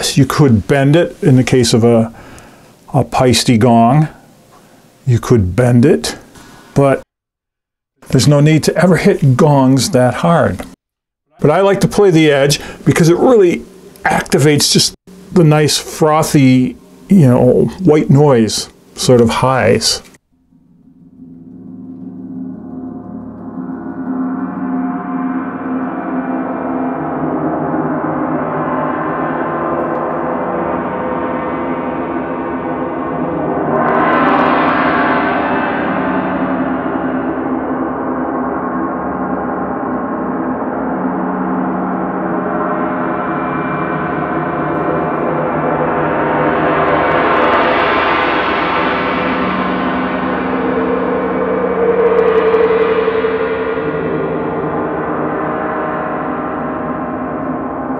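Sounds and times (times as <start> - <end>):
gongs shimmering: 11.4 - 19.8, 20.5 - 57.9.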